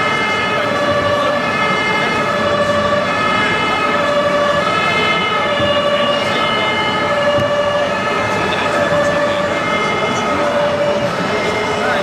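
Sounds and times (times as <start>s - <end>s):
background noise: 0.0s - 12.0s
two-tone toy fire engine siren: 0.0s - 12.0s.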